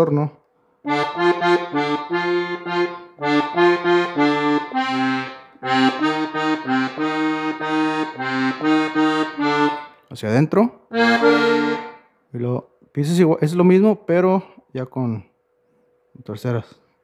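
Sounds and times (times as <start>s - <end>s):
button accordion playing: 0.8s - 10.1s, 10.9s - 12.2s.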